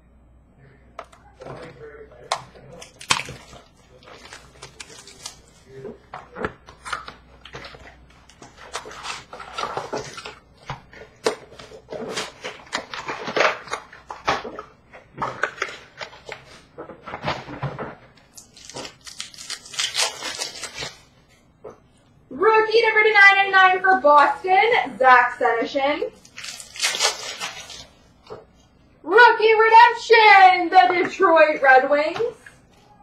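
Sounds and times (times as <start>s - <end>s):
foil wrappers crinkling: 2.6s - 6.1s, 6.7s - 21.1s, 26.2s - 28.4s.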